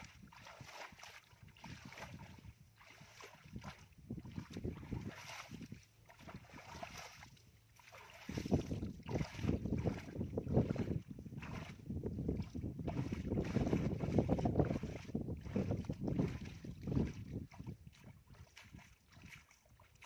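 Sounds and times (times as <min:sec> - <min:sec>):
wind buffeting microphone: 0:00.0 - 0:07.5, 0:08.1 - 0:19.4
bare feet rustling through wet grass: 0:00.0 - 0:11.9.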